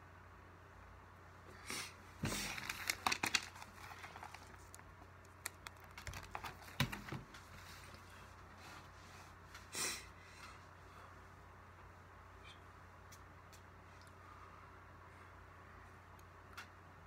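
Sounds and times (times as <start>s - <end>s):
paper rustling: 2.2s - 8.4s.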